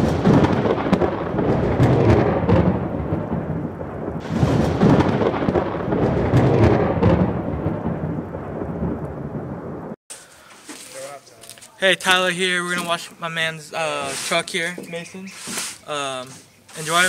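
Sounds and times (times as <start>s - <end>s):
thunder rolling: 0.0s - 10.0s.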